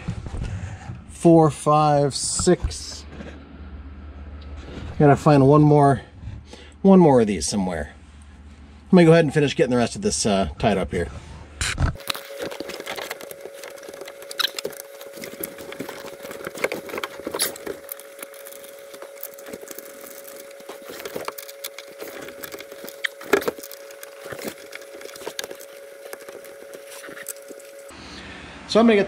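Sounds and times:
faint steady hum: 0:00.0 - 0:29.0.

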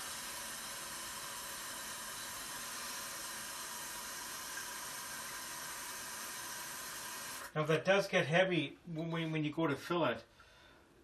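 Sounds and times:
faucet water filling plastic reservoir: 0:00.0 - 0:07.5.

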